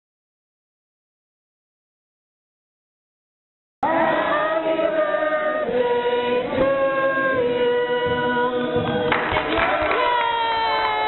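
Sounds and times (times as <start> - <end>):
group singing held notes: 3.8 - 9.1.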